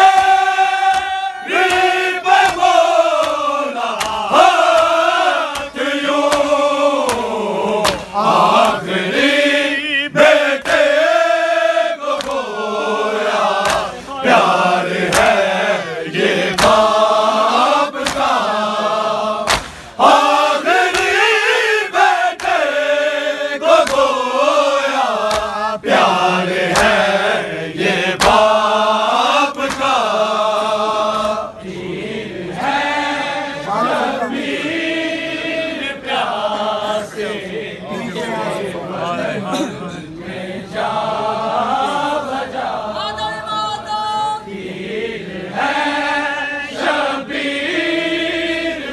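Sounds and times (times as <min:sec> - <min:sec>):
chest-beating slaps: 0:00.0 - 0:08.8, 0:12.1 - 0:12.5, 0:13.3 - 0:15.6, 0:16.4 - 0:17.3, 0:18.0 - 0:18.5, 0:19.4 - 0:21.3, 0:22.4 - 0:22.8, 0:23.7 - 0:24.2, 0:25.2 - 0:27.2, 0:28.1 - 0:31.6
men chanting a lament in unison: 0:00.0 - 0:43.8, 0:44.4 - 0:48.9.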